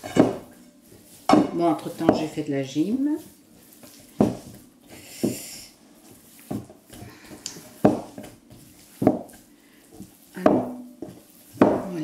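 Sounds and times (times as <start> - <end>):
dough thumping in glass bowl: 0.0 - 2.4, 3.8 - 5.4, 6.4 - 9.4, 10.0 - 12.0.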